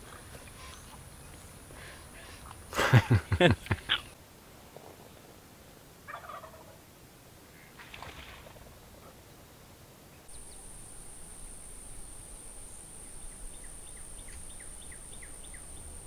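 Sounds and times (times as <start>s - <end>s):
turkey gobbling: 6.1s - 6.8s
high insect drone: 10.3s - 16.0s.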